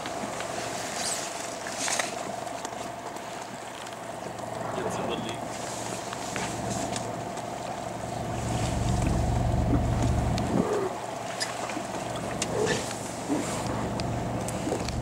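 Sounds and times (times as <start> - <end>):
boat engine humming: 0.0 - 15.0
water washing against hull: 0.0 - 15.0
wind on microphone: 8.0 - 15.0.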